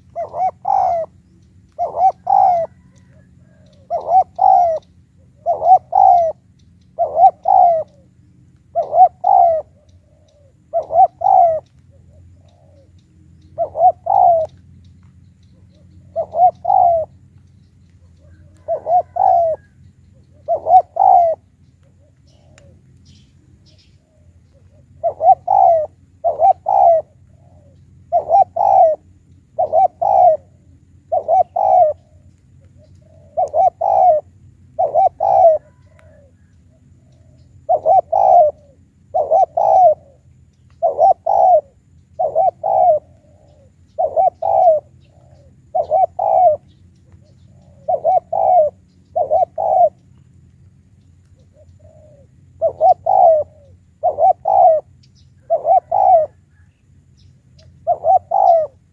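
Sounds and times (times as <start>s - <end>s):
dove cooing: 0.0s - 14.7s, 15.4s - 50.3s, 51.3s - 58.9s.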